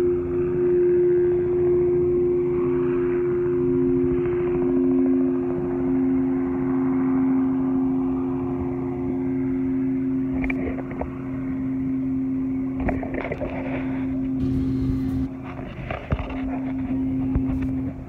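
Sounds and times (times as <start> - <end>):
large gong humming: 0.0 - 18.0.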